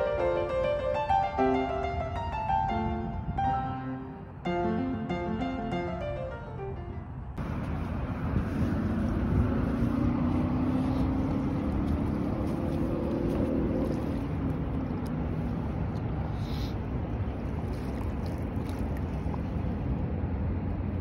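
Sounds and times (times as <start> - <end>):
piano music: 0.0 - 7.6
distant engine drone: 0.0 - 21.0
wind on microphone: 1.7 - 4.5, 7.3 - 21.0
lake waves lapping on sand: 7.4 - 20.2.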